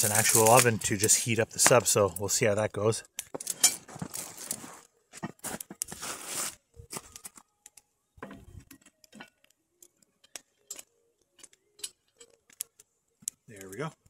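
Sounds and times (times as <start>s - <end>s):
rustling crunch: 0.0s - 1.2s, 3.6s - 7.4s.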